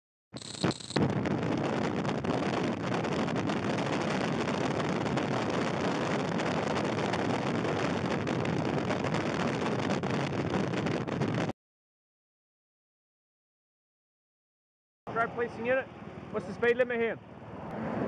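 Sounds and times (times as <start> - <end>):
wind rushing over microphone: 0.4 - 11.5.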